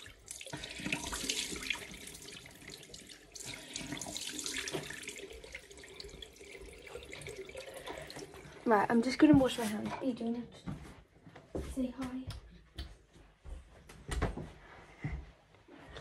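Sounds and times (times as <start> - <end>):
tap water splashing into sink: 0.0 - 9.6.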